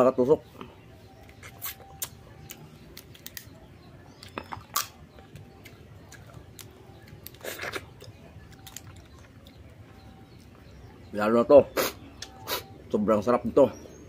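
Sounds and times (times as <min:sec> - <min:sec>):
crab shell cracking: 0:04.2 - 0:09.3
close-up chewing: 0:04.2 - 0:10.7.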